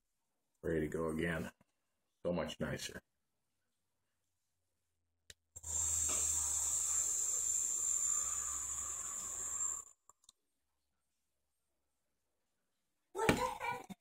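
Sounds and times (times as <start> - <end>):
vaporiser coil hissing: 5.6 - 10.2.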